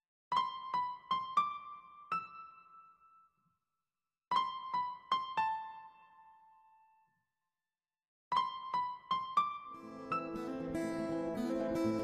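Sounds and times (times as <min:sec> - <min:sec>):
piano music: 0:08.3 - 0:12.0.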